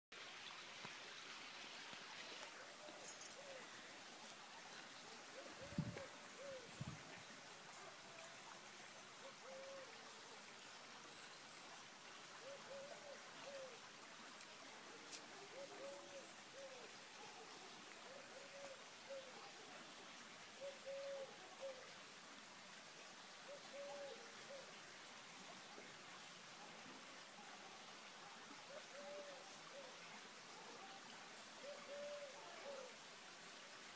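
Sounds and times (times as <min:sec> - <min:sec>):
faint stream hiss: 0:00.1 - 0:33.9
dove cooing: 0:02.8 - 0:04.2, 0:05.1 - 0:07.0, 0:09.2 - 0:10.2, 0:12.3 - 0:13.8, 0:15.3 - 0:19.6, 0:20.6 - 0:21.9, 0:23.5 - 0:24.7, 0:28.7 - 0:31.0, 0:31.6 - 0:33.0.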